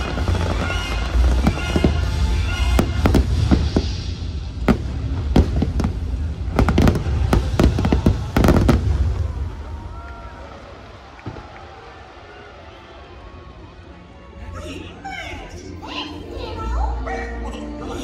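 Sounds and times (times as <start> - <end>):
music playing: 0.0 - 9.4, 12.9 - 18.0
deep fireworks rumble: 0.0 - 12.0
fireworks bangs: 0.0 - 12.0.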